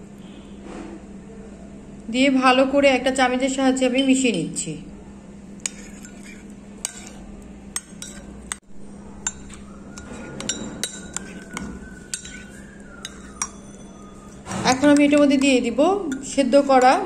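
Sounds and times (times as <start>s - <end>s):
metal spoon clinking in ceramic bowl: 5.6s - 17.0s.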